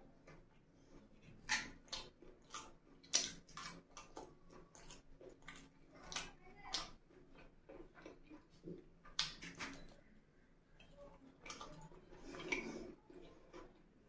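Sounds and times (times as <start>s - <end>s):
close-up chewing: 0.0s - 14.0s
wet mouth smacks: 1.4s - 6.9s, 9.1s - 9.8s.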